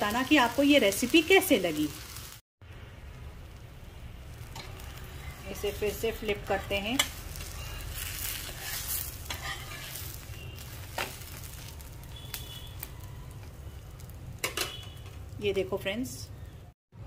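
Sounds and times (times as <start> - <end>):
batter sizzling in oil: 0.0 - 16.7
metal spatula scraping pan: 6.3 - 11.2.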